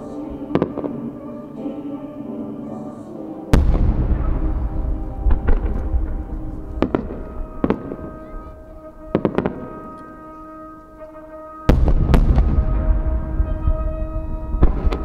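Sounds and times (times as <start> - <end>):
music: 0.0 - 15.0
sharp firework cracks: 3.6 - 8.3, 11.7 - 15.0
firework shell bursting with boom: 11.7 - 13.8.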